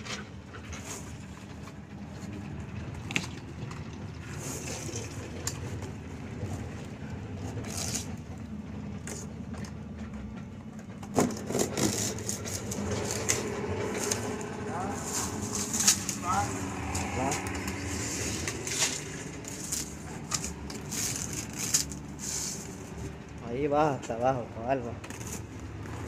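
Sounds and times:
low rumble: 0.4s - 23.5s
mat rustling and scraping: 11.2s - 23.2s.

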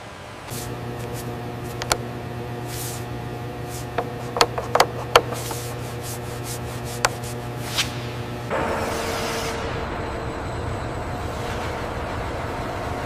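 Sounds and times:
machinery hum: 0.0s - 13.0s
sharp clicks and knocks: 1.7s - 2.0s, 3.9s - 5.6s.

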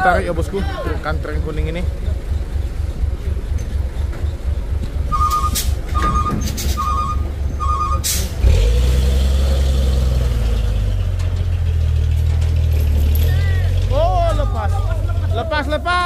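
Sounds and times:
diesel truck engine chugging: 0.0s - 16.0s
reversing alarm beeping: 5.0s - 8.2s.

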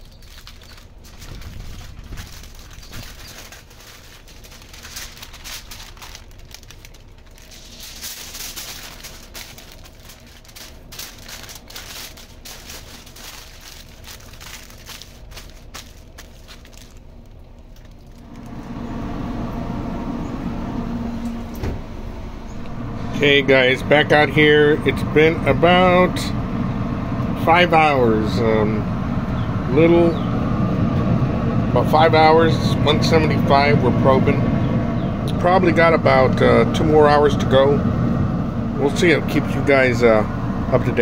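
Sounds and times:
aluminium foil crinkling: 0.0s - 18.7s
smoker humming: 0.0s - 41.0s.

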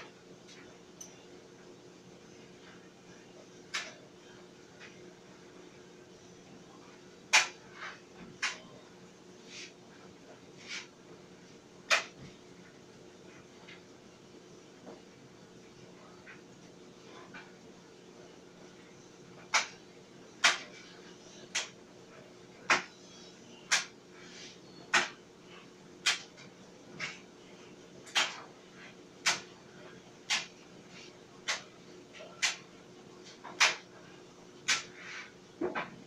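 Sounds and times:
clothes dryer humming: 0.0s - 36.0s.

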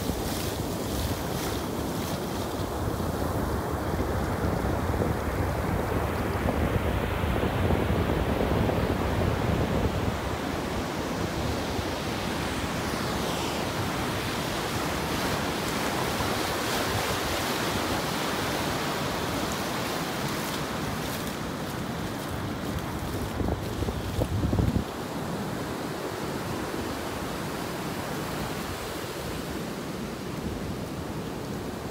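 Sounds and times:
wind buffeting microphone: 0.0s - 25.4s
ocean surf on a beach: 0.0s - 31.9s.

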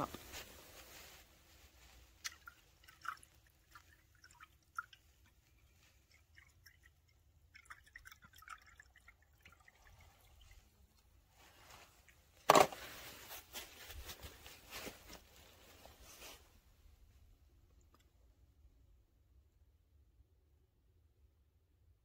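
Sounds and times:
liquid dripping into glass beaker: 2.2s - 10.6s.

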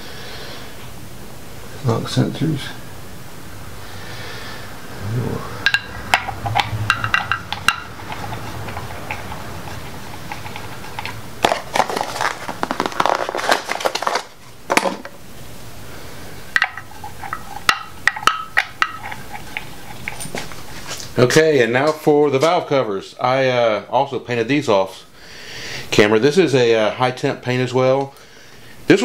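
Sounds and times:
packaging crinkling: 10.3s - 15.0s.

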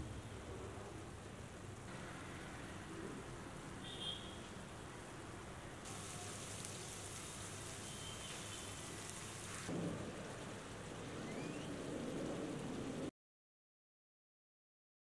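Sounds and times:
food sizzling in hot oil: 5.8s - 9.7s.

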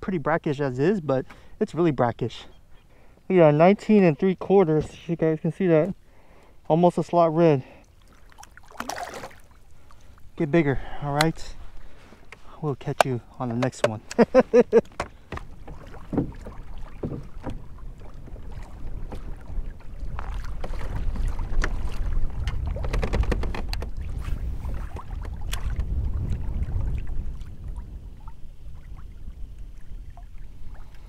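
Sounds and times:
water sloshing against hull: 1.2s - 31.0s
wind rumbling on microphone: 8.4s - 31.0s
light clicks and knocks: 12.2s - 17.6s, 22.4s - 23.9s.

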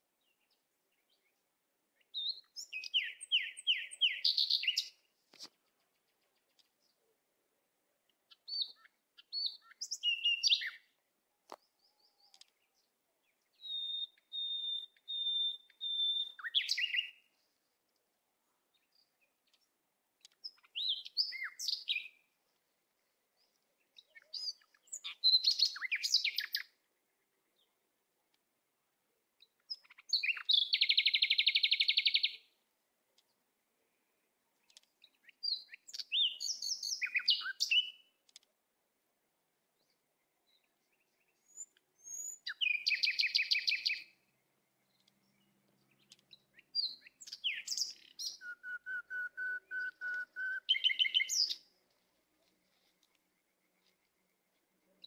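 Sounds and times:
songbird trilling and whistling: 2.2s - 5.0s, 8.5s - 10.8s, 13.5s - 17.2s, 20.4s - 22.2s, 24.2s - 26.6s, 29.7s - 32.4s, 35.4s - 38.0s, 41.3s - 44.1s, 46.3s - 51.6s.

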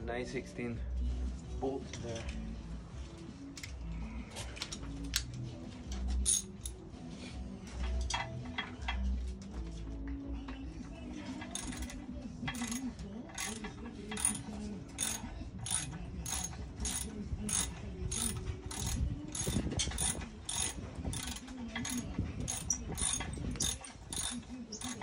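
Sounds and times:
ratchet wrench clicking: 6.2s - 6.7s, 11.4s - 25.0s.

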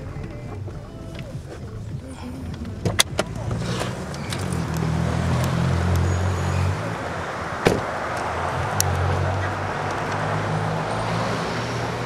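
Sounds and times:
car engine running: 0.0s - 12.0s
road and street noise: 0.0s - 12.0s
sharp thump: 7.6s - 8.0s.

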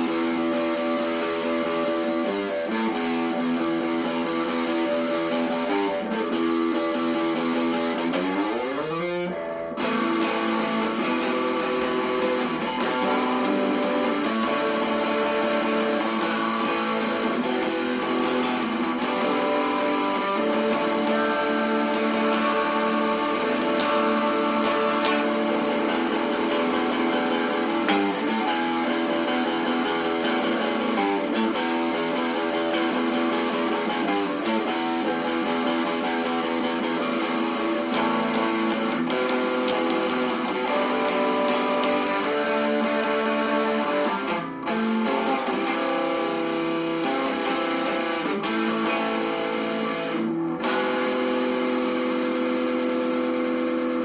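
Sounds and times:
electric guitar strumming chords: 0.0s - 54.0s.

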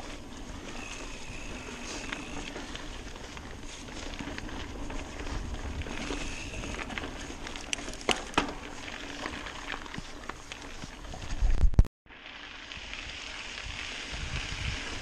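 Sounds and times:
bike tyres crunching on dirt: 0.0s - 15.0s
wind buffeting the microphone: 0.6s - 7.2s, 13.6s - 15.0s
bike knocks and rattles: 2.0s - 11.8s.

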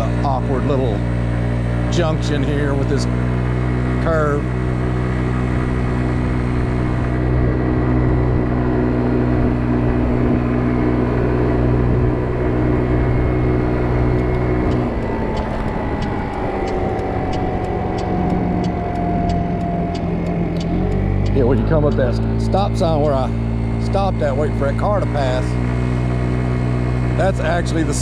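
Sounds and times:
scooter engine running: 0.0s - 28.0s
light ticking: 14.1s - 22.2s.

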